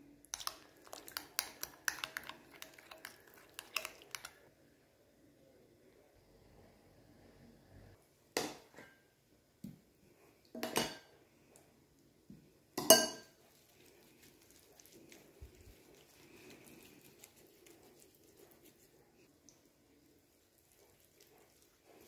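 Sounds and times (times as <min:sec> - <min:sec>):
soft rubbing of paste on skin: 0:00.4 - 0:04.5, 0:13.4 - 0:22.0
cutlery and dishes clinking: 0:12.8 - 0:13.4.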